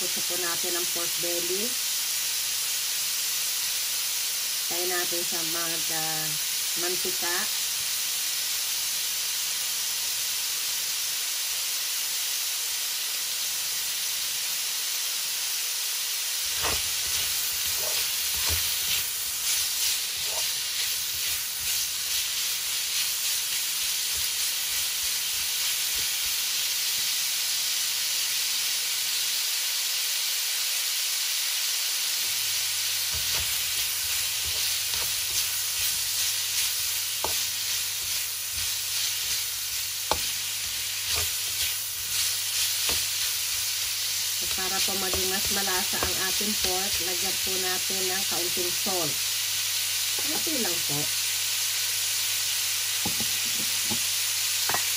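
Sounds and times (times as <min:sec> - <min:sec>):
meat sizzling in hot oil: 0:00.0 - 0:54.9.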